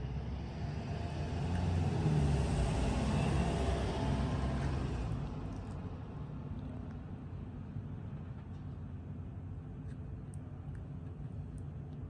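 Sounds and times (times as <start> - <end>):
low background rumble: 4.8 - 12.0.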